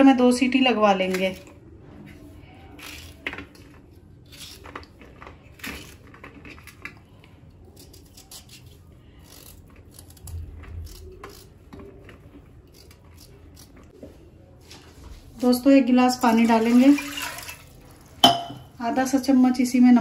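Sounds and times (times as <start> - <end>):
knife cutting vegetables: 2.6 - 7.0, 7.6 - 14.0.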